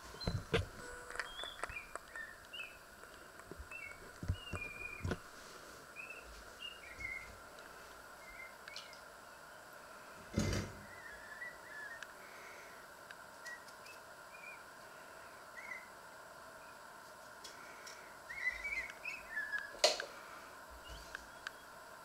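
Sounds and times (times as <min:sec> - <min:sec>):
small birds chirping: 0:00.0 - 0:05.2, 0:05.9 - 0:09.8, 0:10.4 - 0:12.8, 0:13.4 - 0:16.0, 0:16.6 - 0:21.8
faint steady hum: 0:00.0 - 0:22.0.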